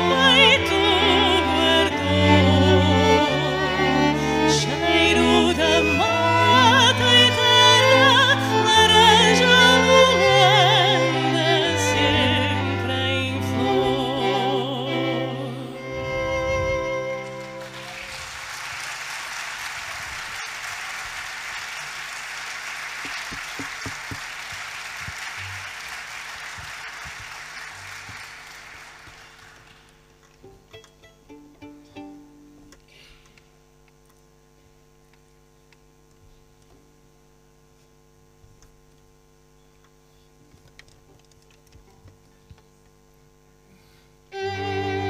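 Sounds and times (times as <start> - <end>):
soprano singing with vibrato: 0.0 - 16.0
string quartet: 0.0 - 18.2, 30.2 - 32.8, 44.3 - 45.0
audience applause: 16.2 - 30.2.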